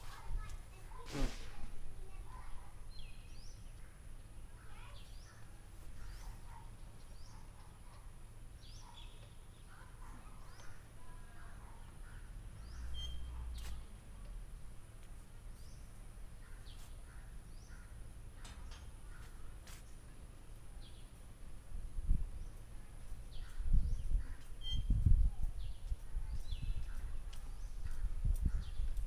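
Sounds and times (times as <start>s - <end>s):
birds chirping: 2.0s - 21.4s, 22.3s - 29.0s
wind rumble on microphone: 21.7s - 29.0s.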